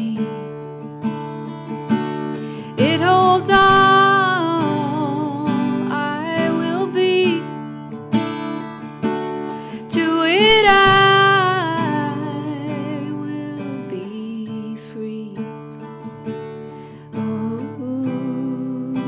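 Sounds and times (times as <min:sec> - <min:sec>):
woman singing: 0:00.0 - 0:00.9, 0:02.5 - 0:07.9, 0:09.6 - 0:16.0, 0:16.9 - 0:19.0
acoustic guitar strummed: 0:00.0 - 0:19.0.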